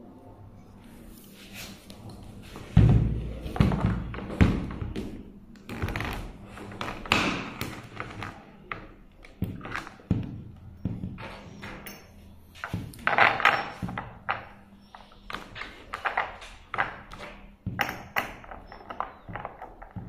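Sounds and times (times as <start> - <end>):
hard plastic knocks and thuds: 2.7 - 6.2, 9.4 - 11.4.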